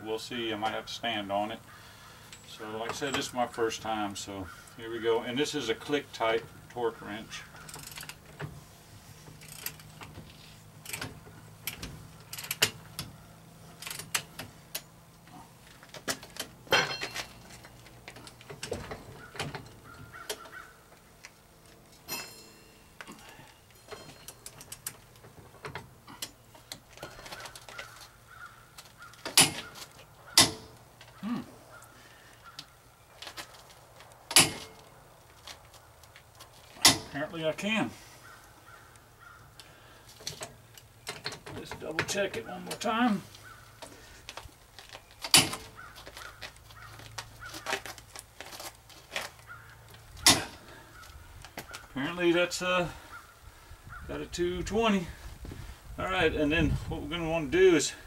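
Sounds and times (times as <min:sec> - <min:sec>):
metallic knocks: 0:16.1 - 0:17.7, 0:29.2 - 0:30.8, 0:34.3 - 0:34.8, 0:50.2 - 0:50.7.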